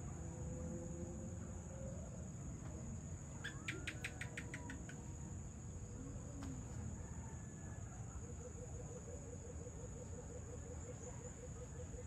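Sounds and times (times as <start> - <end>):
insects trilling: 0.0 - 12.0
animal sharp chirps: 3.4 - 5.0.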